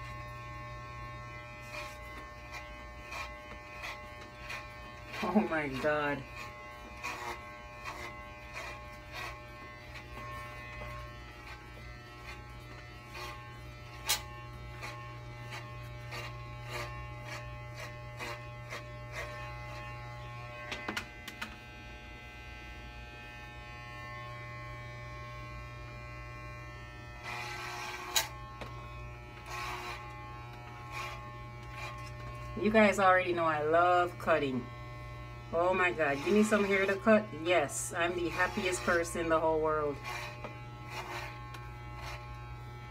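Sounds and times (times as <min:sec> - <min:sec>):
electric hair clippers buzzing: 0:00.0 - 0:42.9.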